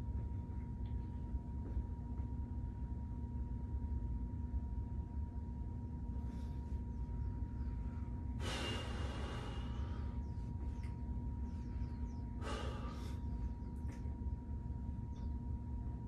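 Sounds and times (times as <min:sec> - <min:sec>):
faint hum: 0:00.0 - 0:16.0
person exhaling heavily: 0:08.4 - 0:10.2, 0:12.4 - 0:13.3.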